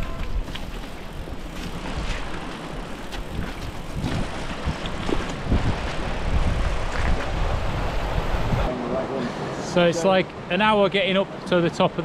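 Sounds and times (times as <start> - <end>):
bike rattling over stones: 0.0 - 6.1
wind on microphone: 3.0 - 8.7.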